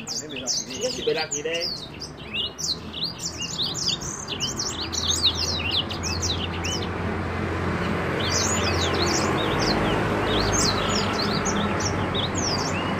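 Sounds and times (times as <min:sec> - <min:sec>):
songbird chirping and whistling: 0:00.0 - 0:06.8.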